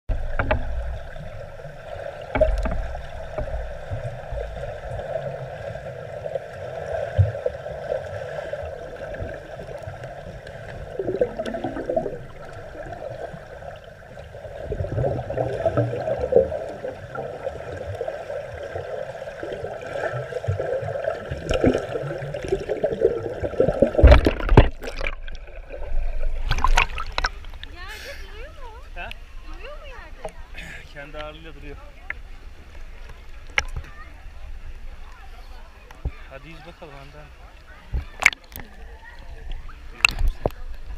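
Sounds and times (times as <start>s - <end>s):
knocks and splashes: 0.1s - 5.0s, 19.6s - 27.8s, 37.9s - 38.8s
muffled underwater gurgle and slosh: 0.1s - 27.9s, 37.4s - 40.9s.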